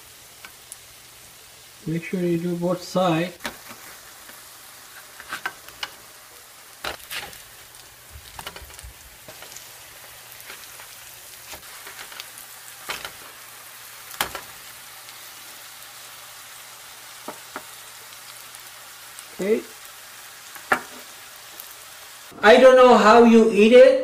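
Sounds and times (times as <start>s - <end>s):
patties sizzling in oil: 0.0s - 22.3s
spatula scraping frying pan: 3.4s - 6.1s, 6.8s - 7.6s, 8.2s - 13.4s.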